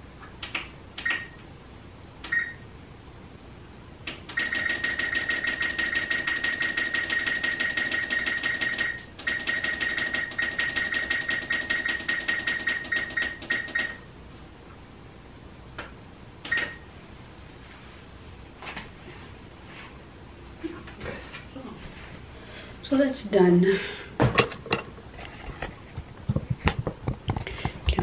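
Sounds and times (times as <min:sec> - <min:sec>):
stove control panel beeping: 0:00.5 - 0:01.4, 0:16.4 - 0:16.8.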